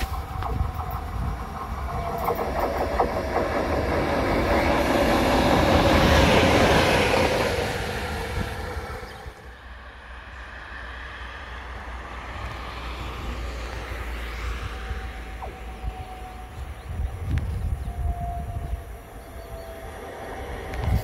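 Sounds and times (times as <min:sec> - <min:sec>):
electric locomotive passing: 0:00.0 - 0:21.0.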